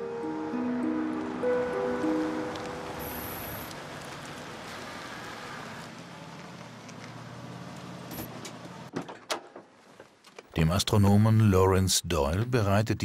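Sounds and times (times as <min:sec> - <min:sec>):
tyre hiss on pavement: 0:02.2 - 0:07.2.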